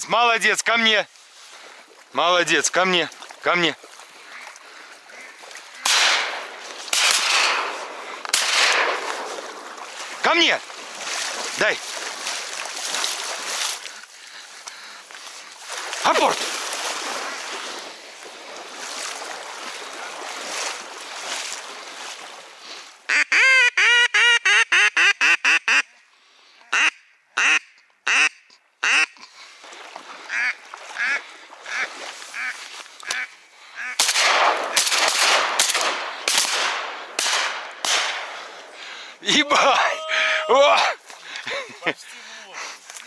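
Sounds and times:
duck quacking: 0:04.2 - 0:06.1, 0:23.1 - 0:26.0, 0:26.7 - 0:29.3, 0:30.3 - 0:34.0.

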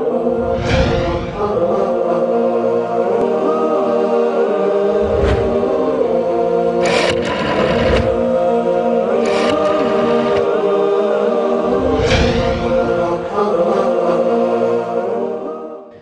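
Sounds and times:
choral theme music: 0:00.0 - 0:16.0
swish: 0:00.4 - 0:01.9.

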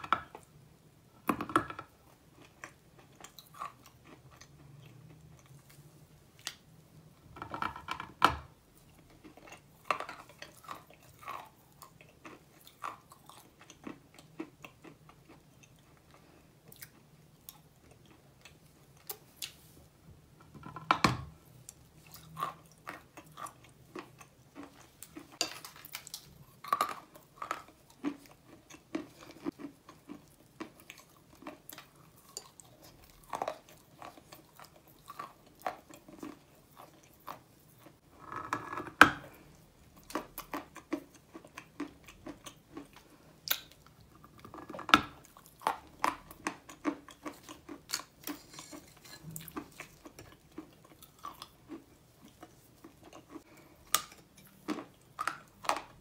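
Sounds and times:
chalk crunching while chewed: 0:02.1 - 0:05.8, 0:21.7 - 0:38.0, 0:38.6 - 0:56.0.

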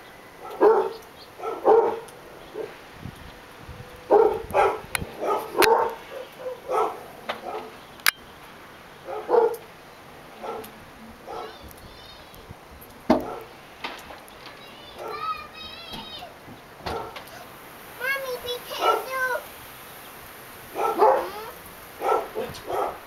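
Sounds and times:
dog barking: 0:00.4 - 0:02.8, 0:04.1 - 0:07.8, 0:09.0 - 0:09.6, 0:10.4 - 0:11.6, 0:13.2 - 0:13.5, 0:15.0 - 0:15.3, 0:16.9 - 0:17.3, 0:18.7 - 0:19.2, 0:20.7 - 0:23.0.

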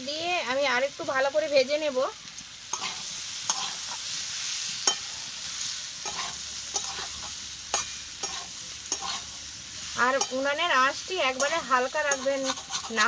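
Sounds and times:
frying in hot oil sizzling: 0:00.0 - 0:13.0
metal spatula scraping a pan: 0:02.7 - 0:13.0.

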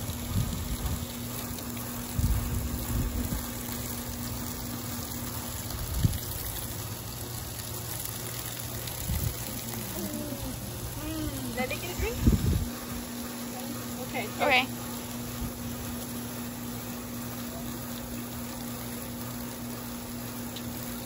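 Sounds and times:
water running from hose: 0:00.0 - 0:21.0.

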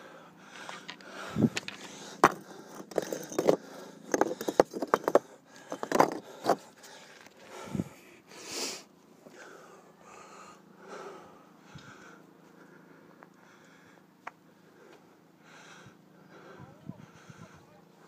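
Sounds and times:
hand and camera knocking on boulders: 0:01.6 - 0:06.6.

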